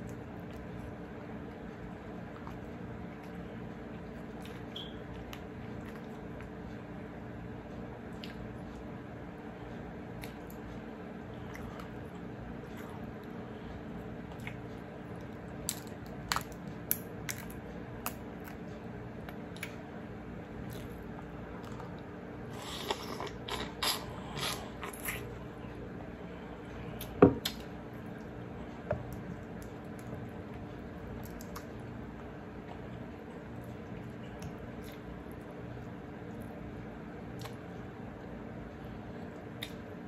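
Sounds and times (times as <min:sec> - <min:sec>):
steady low hum: 0:00.0 - 0:40.0
wet slurping and chewing: 0:20.6 - 0:25.6.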